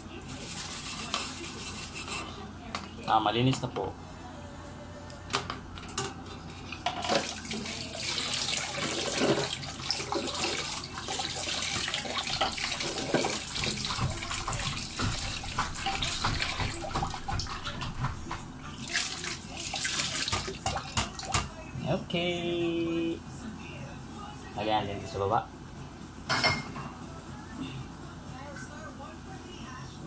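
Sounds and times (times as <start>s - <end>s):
water splashing over plastic grille: 7.0s - 21.4s.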